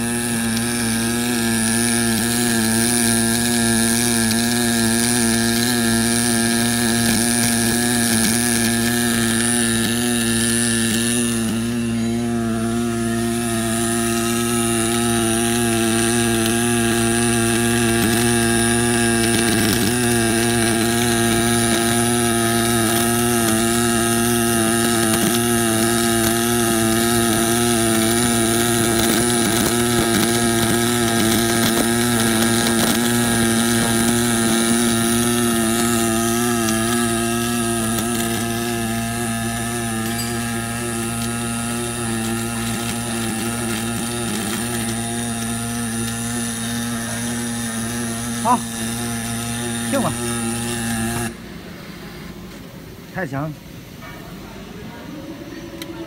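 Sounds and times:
welding machine buzzing hum: 0:00.0 - 0:54.0.

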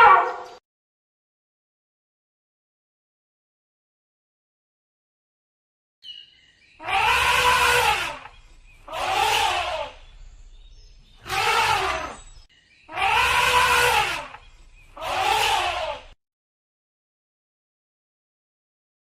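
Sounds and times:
elephant trumpeting: 0:00.0 - 0:00.6, 0:06.8 - 0:10.2, 0:11.2 - 0:16.2.

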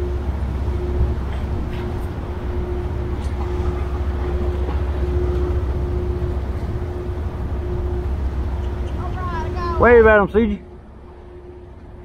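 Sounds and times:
diesel engines rumbling: 0:00.0 - 0:12.0
steady hum: 0:00.0 - 0:12.0.

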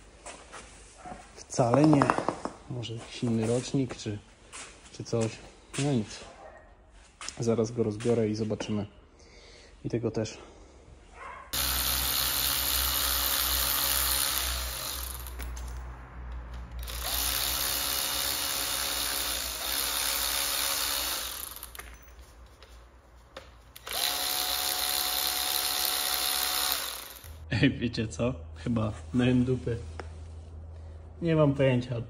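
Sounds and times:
power driver motor whining: 0:11.6 - 0:15.4, 0:16.7 - 0:21.8, 0:23.8 - 0:27.4.

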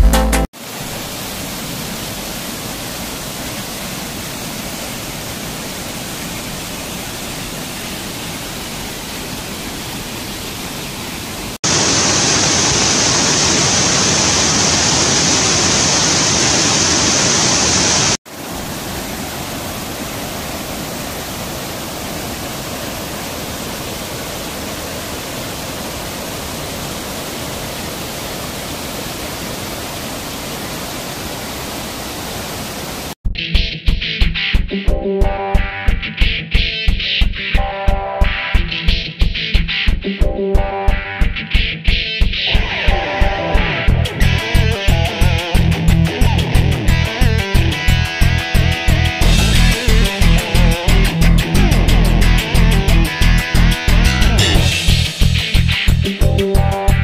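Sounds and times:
waterfall rushing: 0:00.5 - 0:33.2, 0:42.5 - 0:56.0.

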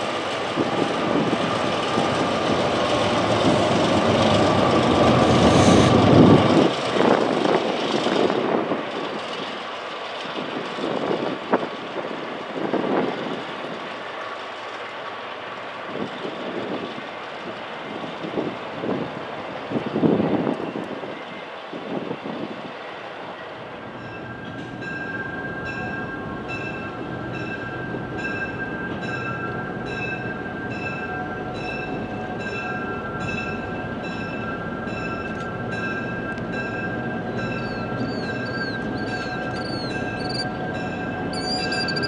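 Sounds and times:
diesel locomotive engine rumble: 0:00.0 - 0:42.0
rushing noise: 0:02.2 - 0:07.5
locomotive bell ringing: 0:24.0 - 0:42.0.

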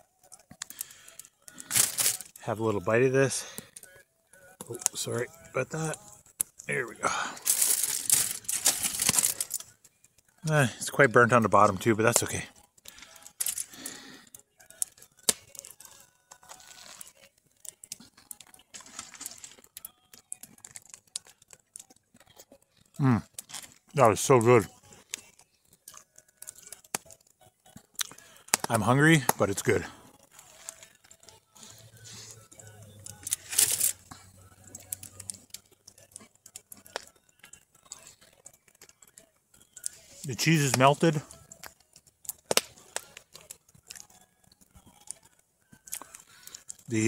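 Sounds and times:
wood fire crackling: 0:00.0 - 0:47.0
sharp pops: 0:42.3 - 0:42.8.

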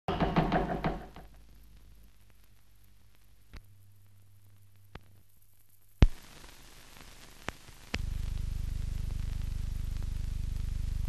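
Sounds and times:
steady hiss: 0:00.2 - 0:11.0
low hum: 0:08.0 - 0:11.0.

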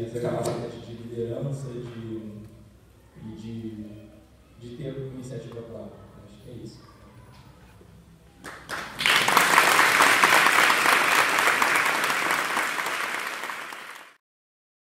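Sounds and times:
audience applause: 0:08.4 - 0:14.2.

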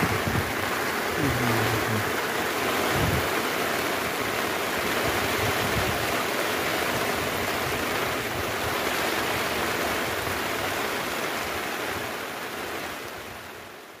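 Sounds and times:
heavy rain on sea surface: 0:00.0 - 0:14.0.

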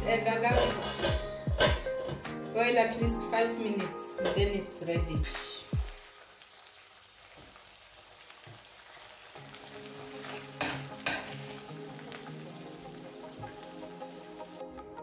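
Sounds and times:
metal spoon stirring: 0:00.6 - 0:02.3
sauce sizzling in frying pan: 0:04.2 - 0:14.8.

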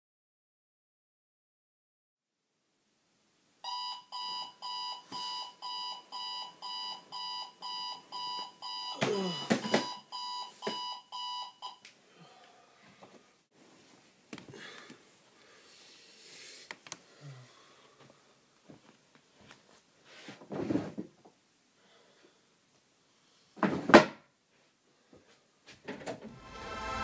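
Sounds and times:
alarm clock beeping: 0:03.6 - 0:11.8
shuffling: 0:18.0 - 0:21.0.

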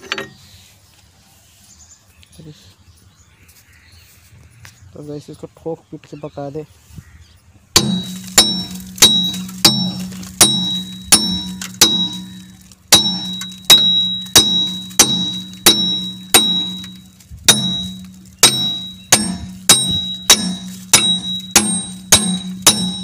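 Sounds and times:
hammer clanging on iron: 0:07.8 - 0:23.0.

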